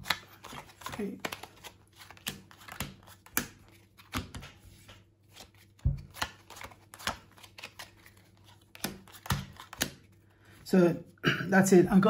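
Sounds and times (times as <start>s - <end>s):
playing cards snapping: 0.0s - 4.6s, 5.4s - 10.0s.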